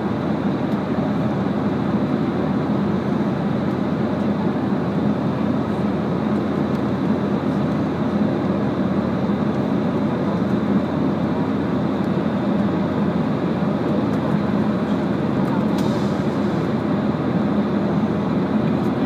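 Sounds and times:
airliner cabin engine and air noise: 0.0 - 19.0.

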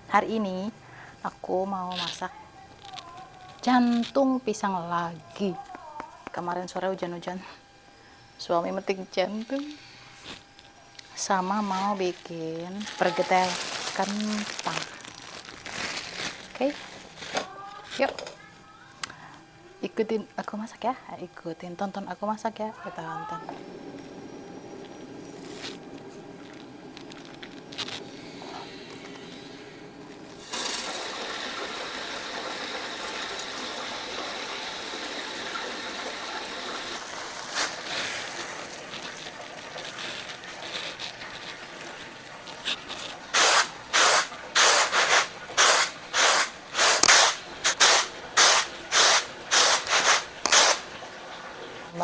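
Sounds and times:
rice pouring onto tray: 30.4 - 33.8.

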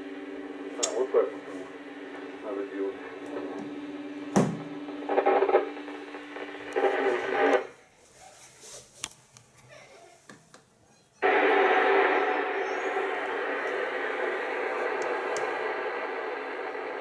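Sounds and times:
loud radio static: 0.0 - 7.8, 11.2 - 17.0
hissy radio channel hum: 0.0 - 7.9, 11.2 - 17.0
garbled radio bursts: 0.4 - 7.7, 11.2 - 17.0
sharp click: 0.8 - 1.0.

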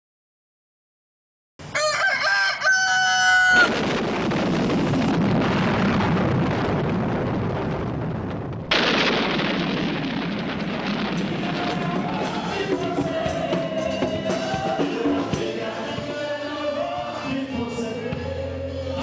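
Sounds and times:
sudden hit: 3.6 - 15.4.

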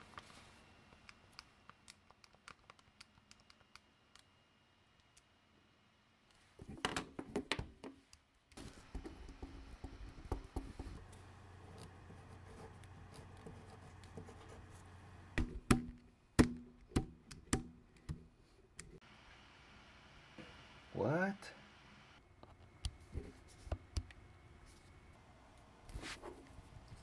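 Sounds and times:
low steady hum: 8.6 - 27.0.

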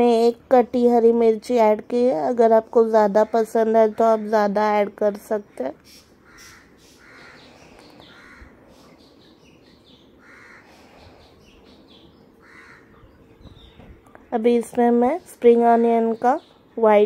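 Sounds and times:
crow cawing faintly: 5.8 - 13.2.

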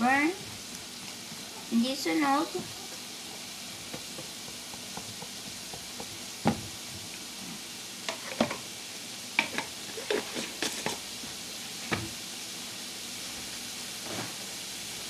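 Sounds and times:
garlic sizzling in oil: 0.0 - 15.0
spatula knocks and clicks: 3.8 - 6.6.

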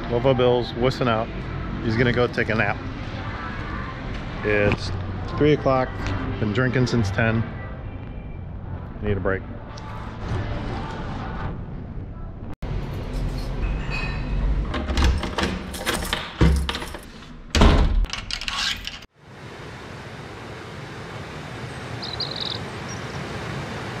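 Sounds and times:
door handle and latch rattling: 14.7 - 19.0.

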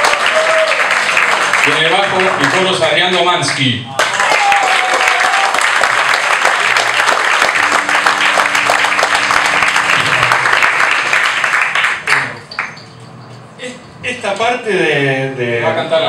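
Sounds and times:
audience applauding: 0.0 - 12.9
low electric bass note: 7.5 - 11.2.

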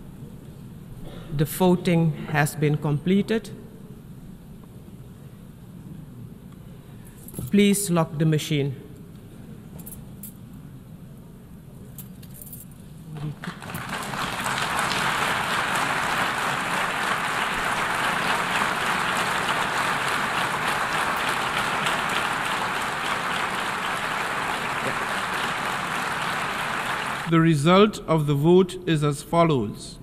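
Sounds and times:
large crowd applauding: 13.2 - 27.3.

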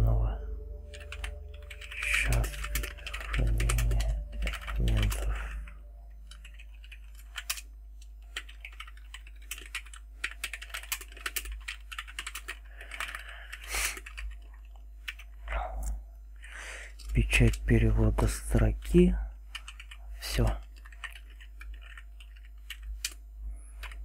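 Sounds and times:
steady low hum: 0.0 - 24.0
keyboard typing clicks: 0.9 - 15.2, 20.7 - 23.2, 23.8 - 24.0.

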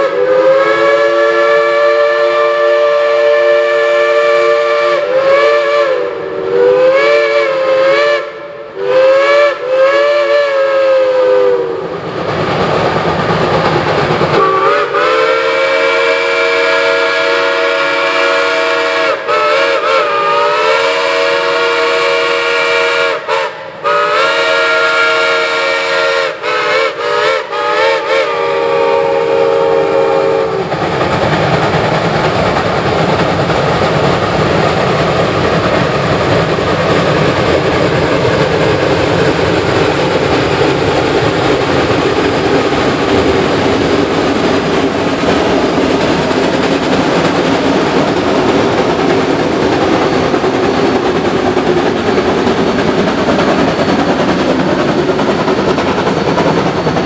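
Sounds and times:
steam whistle blasts: 0.0 - 12.0, 14.4 - 30.7
rushing steam: 0.0 - 57.0.

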